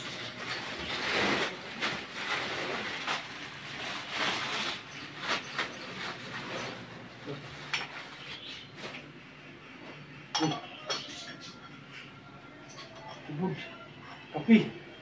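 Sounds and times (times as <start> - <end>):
paper crinkling and rustling: 0.0 - 9.1.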